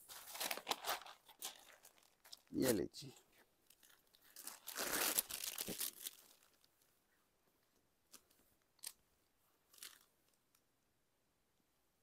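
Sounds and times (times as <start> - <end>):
fabric rustling and crinkling: 0.0 - 2.5, 3.3 - 6.8.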